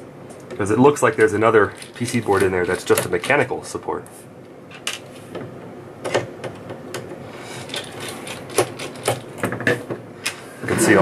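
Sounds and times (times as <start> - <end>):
small parts and tools clicking: 1.2 - 3.5, 6.1 - 9.6.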